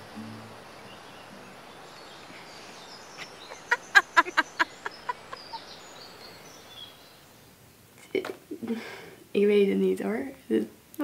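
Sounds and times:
girl laughing: 3.2s - 5.8s.

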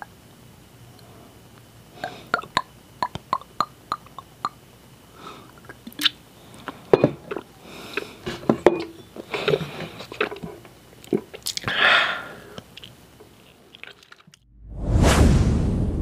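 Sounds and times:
sharp mouth clicks: 2.0s - 4.6s, 5.4s - 6.8s
breath out: 11.6s - 12.6s.

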